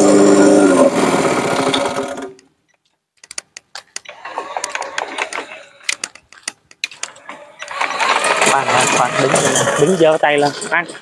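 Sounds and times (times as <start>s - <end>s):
small engine running: 0.0s - 2.4s, 7.2s - 11.0s
sharp clicks and light rattles: 2.4s - 9.5s.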